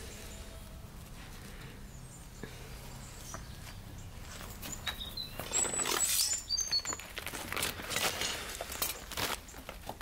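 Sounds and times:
bird chirps: 1.9s - 7.2s
rustling scraping noise: 4.2s - 10.0s.

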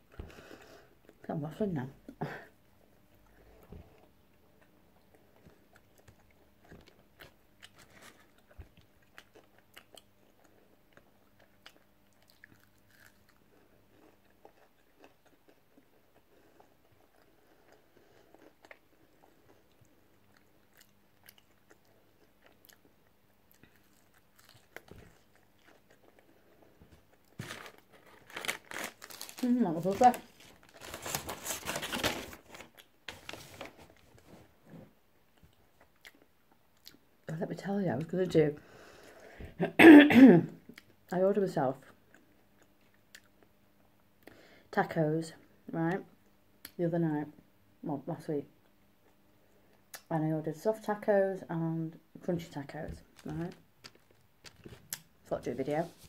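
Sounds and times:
chewing and biting food: 4.4s - 27.8s
mouth clicks and small crunches: 53.0s - 55.1s.

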